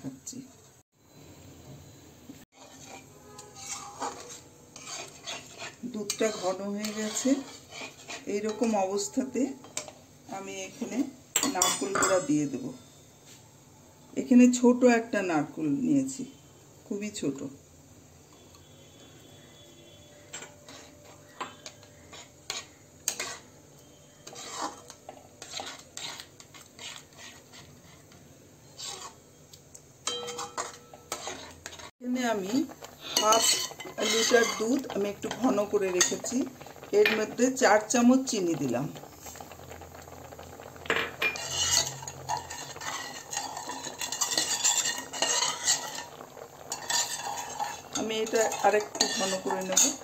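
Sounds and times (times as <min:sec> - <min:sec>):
metal spatula scraping pan: 0:02.5 - 0:10.0, 0:10.7 - 0:12.4, 0:19.8 - 0:29.2, 0:30.0 - 0:37.4, 0:40.9 - 0:50.0.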